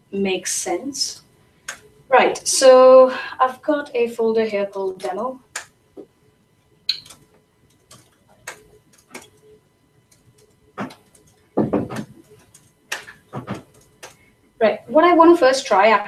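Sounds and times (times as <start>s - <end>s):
typing on laptop keyboard: 6.9s - 9.5s, 10.1s - 14.2s
louder knocks: 11.6s - 12.1s.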